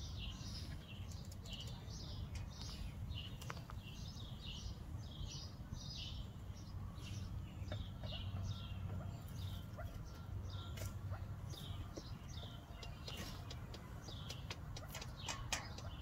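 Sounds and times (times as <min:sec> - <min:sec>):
partridges calling: 0:00.0 - 0:16.0.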